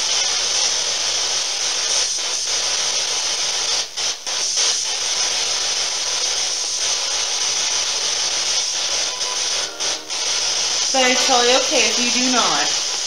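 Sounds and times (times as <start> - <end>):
radio static rush: 7.1 - 13.0.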